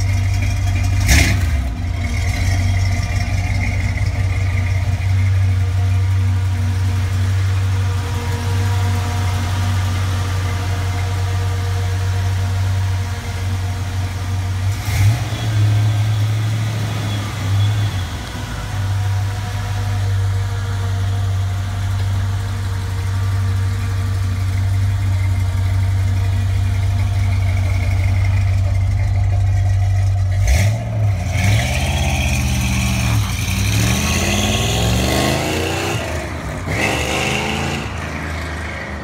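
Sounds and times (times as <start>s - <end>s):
car accelerating away: 0.0s - 6.1s, 14.6s - 20.4s, 24.1s - 39.0s
engine knock: 0.0s - 9.1s, 22.2s - 30.6s
car engine idling: 0.0s - 39.0s.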